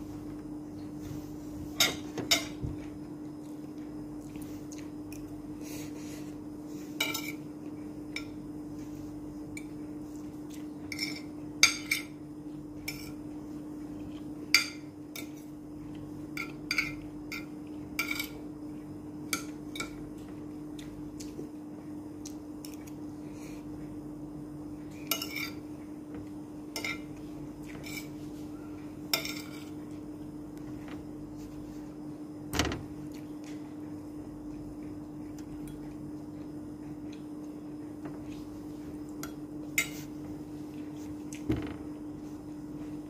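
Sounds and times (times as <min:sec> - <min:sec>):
steady low hum: 0:00.0 - 0:43.0
cutlery clinking on a plate: 0:10.9 - 0:12.2, 0:29.2 - 0:29.8.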